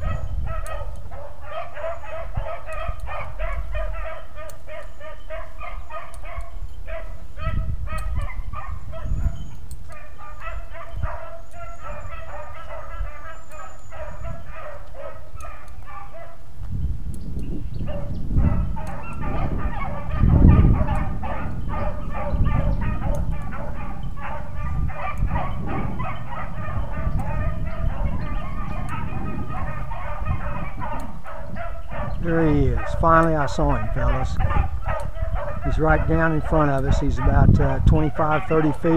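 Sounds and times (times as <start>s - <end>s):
dogs baying and yelping: 0.0s - 16.5s, 17.5s - 38.9s
low rumbling on microphone: 6.4s - 9.6s, 16.6s - 38.6s.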